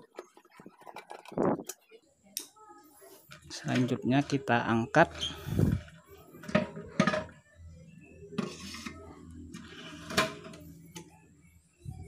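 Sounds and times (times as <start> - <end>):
plastic and metal parts clattering: 0.0 - 1.8.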